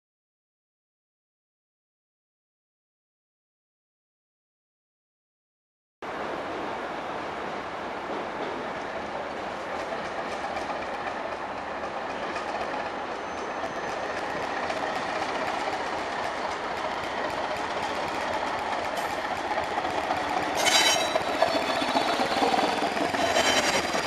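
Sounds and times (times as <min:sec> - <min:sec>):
diesel train approaching: 0:06.0 - 0:24.0
high-pitched squeal from running gear: 0:20.5 - 0:24.0.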